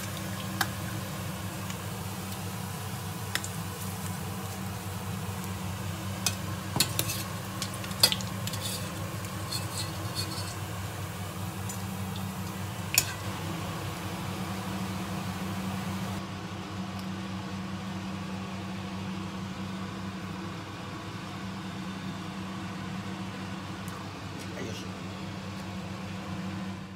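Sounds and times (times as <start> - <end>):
hot oil sizzling: 0.0 - 16.2
steady low hum: 0.0 - 26.9.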